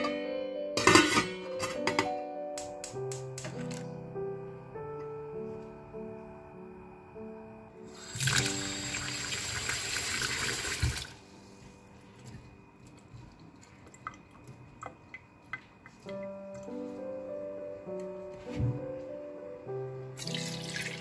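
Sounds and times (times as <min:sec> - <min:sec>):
faint background music: 0:00.0 - 0:21.0
tap water running into bowl: 0:08.0 - 0:11.1, 0:20.2 - 0:21.0.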